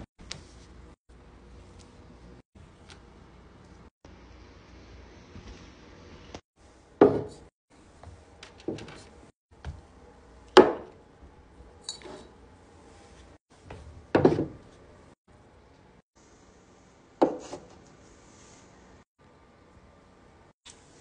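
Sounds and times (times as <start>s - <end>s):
bottles knocking on wooden table: 7.0s - 7.3s.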